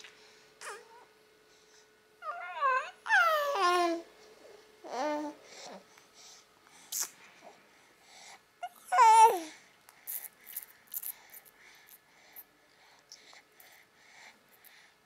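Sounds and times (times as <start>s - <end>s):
baby babbling: 0.6s - 1.1s, 2.2s - 4.1s, 8.6s - 10.2s.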